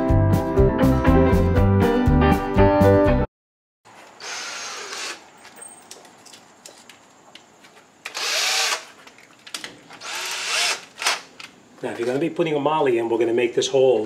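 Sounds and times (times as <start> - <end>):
cordless drill running: 4.2 - 5.2, 8.1 - 8.9, 10.0 - 11.3.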